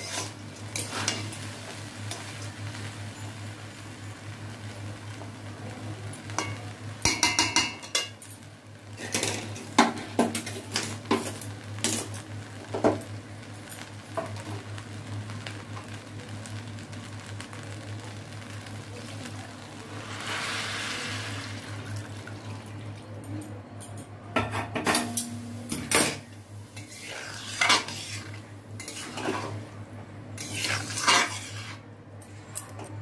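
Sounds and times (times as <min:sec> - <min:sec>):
metal spatula scraping a pan: 0:00.0 - 0:01.4, 0:26.8 - 0:29.6, 0:30.4 - 0:31.8
steady low hum: 0:00.0 - 0:33.0.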